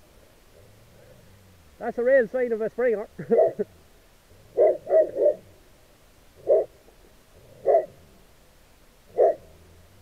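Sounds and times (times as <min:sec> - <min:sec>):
dog barking: 0:04.6 - 0:05.4, 0:06.4 - 0:06.7, 0:07.6 - 0:08.0, 0:09.1 - 0:09.5.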